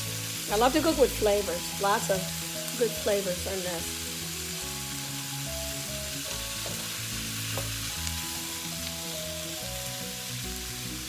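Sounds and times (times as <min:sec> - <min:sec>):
food sizzling in hot oil: 0:00.0 - 0:11.0
utensil knocking on wok: 0:06.6 - 0:07.8.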